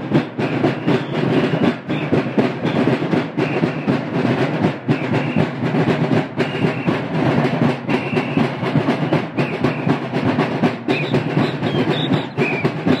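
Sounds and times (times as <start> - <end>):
drums in fast rhythm: 0.0 - 13.0.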